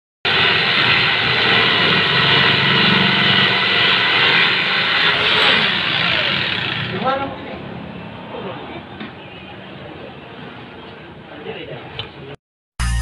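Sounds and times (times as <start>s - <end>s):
jigsaw cutting wood: 0.3s - 7.0s.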